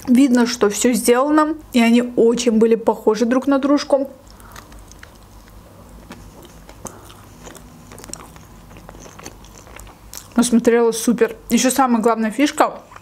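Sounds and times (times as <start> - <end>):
biting into a burger: 4.2 - 10.4
wet chewing mouth clicks: 4.2 - 10.4.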